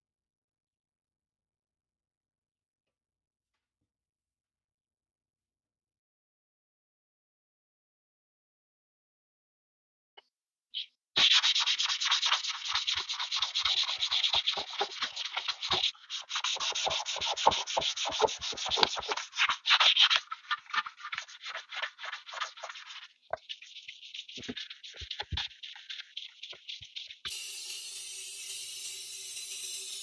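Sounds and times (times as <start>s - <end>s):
sandpaper rubbing on metal: 10.8s - 27.2s.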